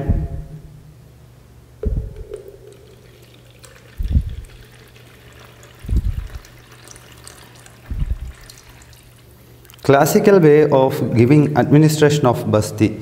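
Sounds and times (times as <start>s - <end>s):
liquid glugging into can: 1.8s - 10.0s
faint liquid trickle: 2.1s - 10.4s.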